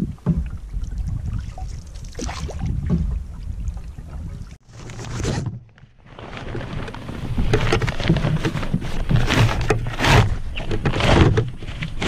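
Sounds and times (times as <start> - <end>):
wind buffeting microphone: 0.0 - 4.6.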